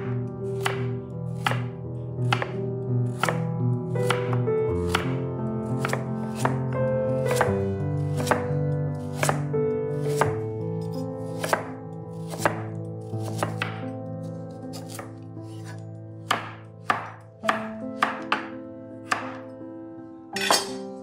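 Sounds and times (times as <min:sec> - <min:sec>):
background music with held notes: 0:00.0 - 0:21.0
knife chopping vegetables: 0:00.5 - 0:03.4, 0:04.0 - 0:05.2, 0:05.8 - 0:06.6, 0:07.2 - 0:13.9, 0:14.7 - 0:19.4.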